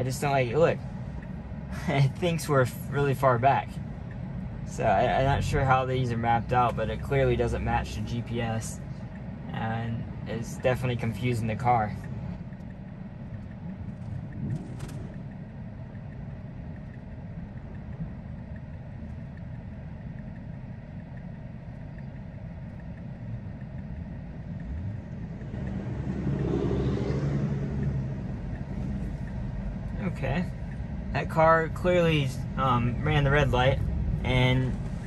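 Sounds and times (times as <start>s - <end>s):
rumble of road traffic: 0.0s - 35.0s
car passing close: 24.5s - 30.8s.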